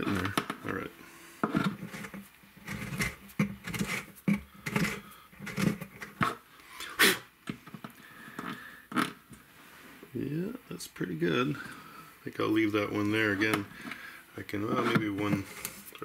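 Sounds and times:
reamer scraping wood: 1.4s - 6.4s, 12.4s - 16.0s.

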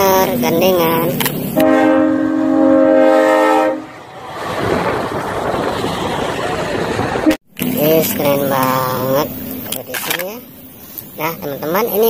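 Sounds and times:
truck rushing past: 1.4s - 9.5s
truck air horn: 1.6s - 3.9s.

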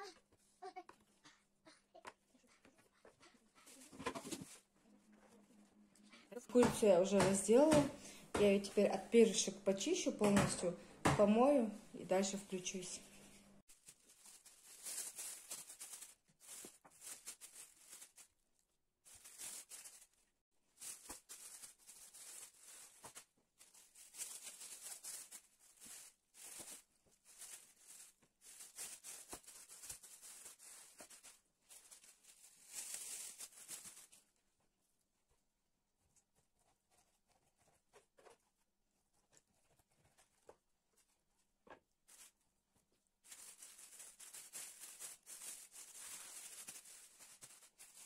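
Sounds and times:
plastic bags crinkling: 13.7s - 18.4s, 19.0s - 34.3s, 43.2s - 48.0s.

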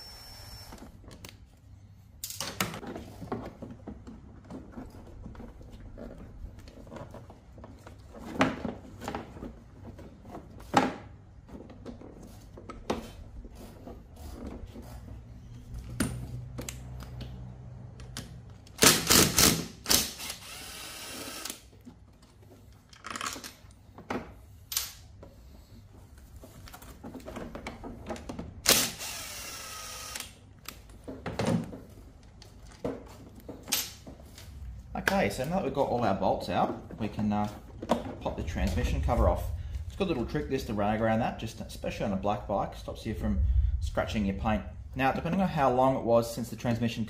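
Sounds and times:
cordless power driver whining: 20.2s - 21.6s, 28.7s - 30.4s
clicks and knocks of tool and bolts: 30.2s - 35.2s.

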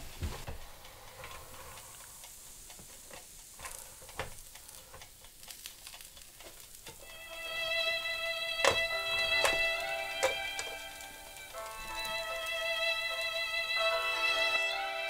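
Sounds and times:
faint sizzling on a grill: 0.0s - 15.0s
music: 7.0s - 15.0s.

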